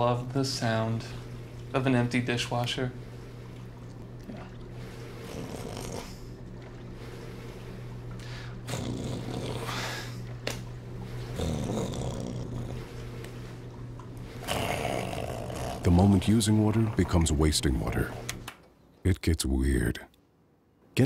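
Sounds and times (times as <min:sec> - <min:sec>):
dishwasher motor hum: 0:00.0 - 0:19.9.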